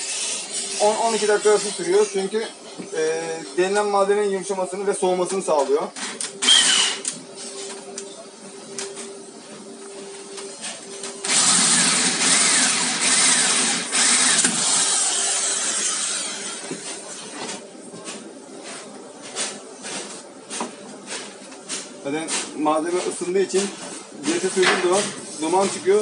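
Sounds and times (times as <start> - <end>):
electric drill cutting metal: 6.4 - 7.2, 11.2 - 16.7.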